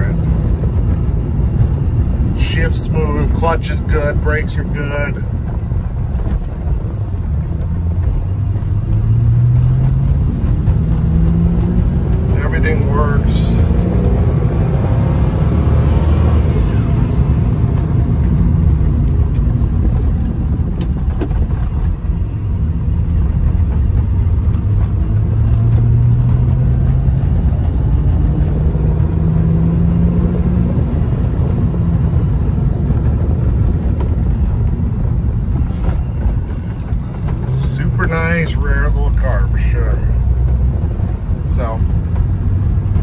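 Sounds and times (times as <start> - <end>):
car engine running: 0.0 - 43.0
road rumble: 0.0 - 43.0.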